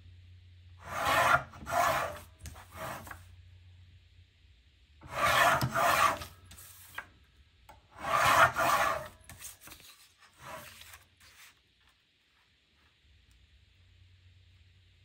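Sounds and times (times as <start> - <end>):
paper trimmer rasping through card: 0.9 - 3.2, 5.1 - 7.0, 8.0 - 9.8.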